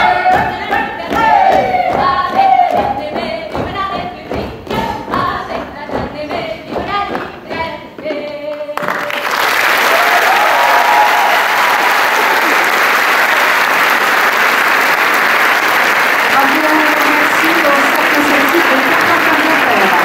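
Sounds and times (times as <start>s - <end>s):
voices singing dance tune: 0.0s - 9.2s
feet thumping on stage floor: 0.2s - 8.2s
audience applause: 8.8s - 20.0s.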